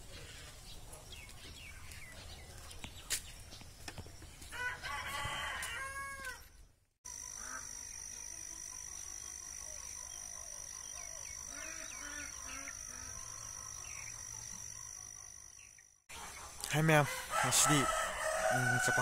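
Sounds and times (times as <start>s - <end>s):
small birds chirping: 0.0s - 4.5s
rooster crowing: 4.5s - 6.5s, 17.0s - 19.0s.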